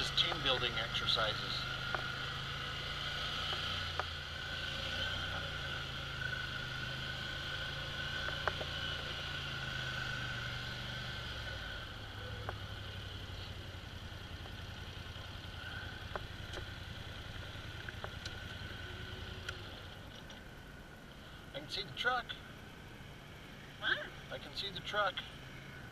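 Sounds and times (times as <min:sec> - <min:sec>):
atv engine humming: 0:00.0 - 0:25.9
faint ticks: 0:17.4 - 0:18.7, 0:19.4 - 0:20.5.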